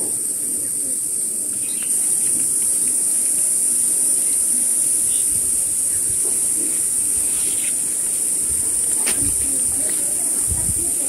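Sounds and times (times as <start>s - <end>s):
faint murmurs: 0.0s - 11.0s
high-pitched hiss: 0.0s - 11.0s.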